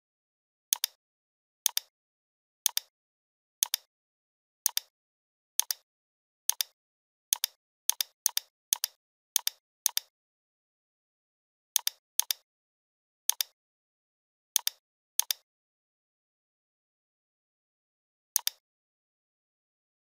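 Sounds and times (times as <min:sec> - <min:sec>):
computer mouse button clicking: 0:18.4 - 0:18.6.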